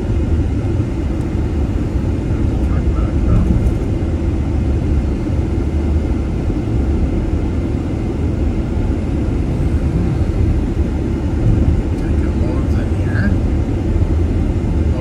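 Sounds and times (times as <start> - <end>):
road noise inside moving vehicle: 0.0 - 15.0.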